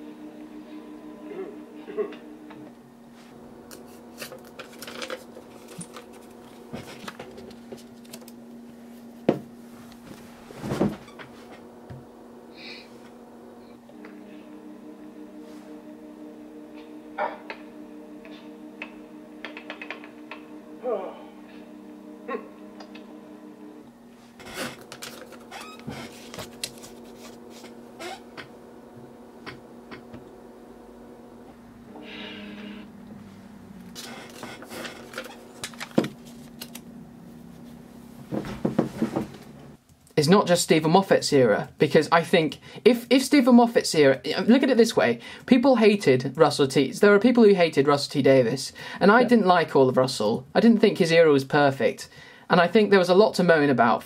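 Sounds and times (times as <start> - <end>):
steady low hum: 0.0 - 54.0
clothing rustling: 8.9 - 11.5.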